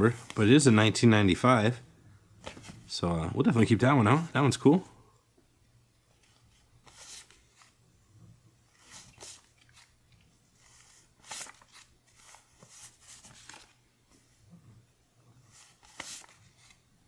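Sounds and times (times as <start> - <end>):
paper bills rustling: 6.2 - 7.8, 8.7 - 13.8, 15.5 - 16.9.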